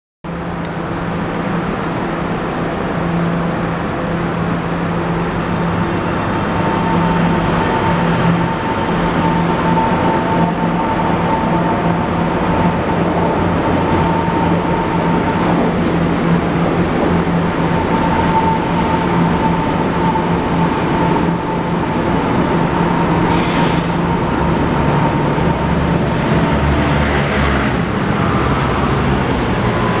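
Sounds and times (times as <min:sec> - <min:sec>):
train rumbling: 0:00.3 - 0:30.0
train whine: 0:00.3 - 0:30.0.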